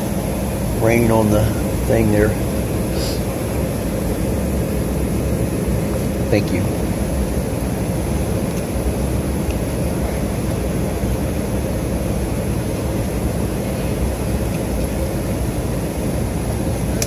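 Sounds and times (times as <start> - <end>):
jet airliner cabin roar: 0.0 - 17.0.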